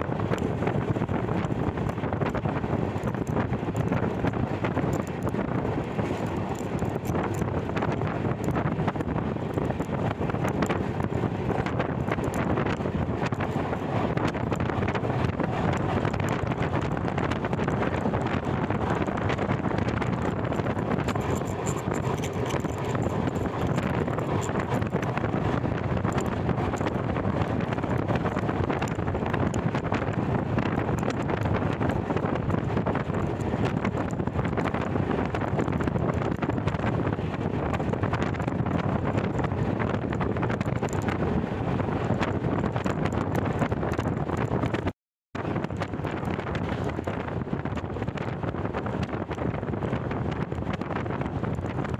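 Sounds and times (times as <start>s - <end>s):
train running on track: 0.0s - 44.8s, 45.4s - 51.7s
wind rushing over microphone: 0.0s - 51.9s.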